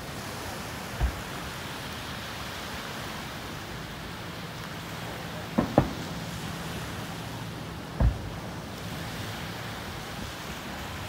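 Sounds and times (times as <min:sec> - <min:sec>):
surf: 0:00.0 - 0:11.0
wind: 0:00.0 - 0:11.0
distant fireworks bangs: 0:05.4 - 0:06.3, 0:08.0 - 0:08.4.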